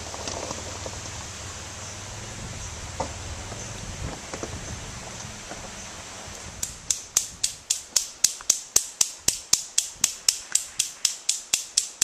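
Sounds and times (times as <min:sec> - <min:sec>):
faint background noise: 0:00.0 - 0:12.0
fast sharp clicks: 0:06.6 - 0:12.0.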